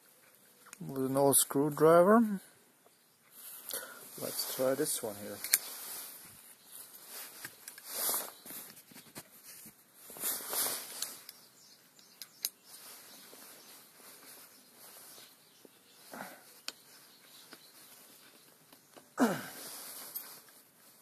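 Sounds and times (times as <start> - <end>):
small metal clicks and scrapes: 5.3 - 5.7.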